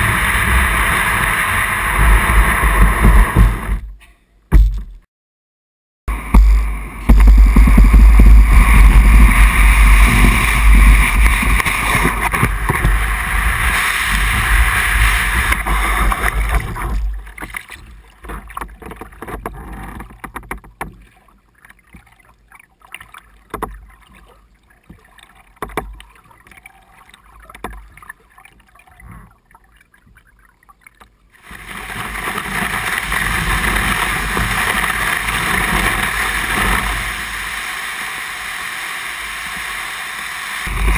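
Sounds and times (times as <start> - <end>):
loud steady rushing noise: 0.0 - 3.7, 6.1 - 16.8
kayak hull scraping over snow: 0.0 - 3.9, 6.1 - 21.4, 31.4 - 40.9
paddle splashes and drips: 8.5 - 40.9.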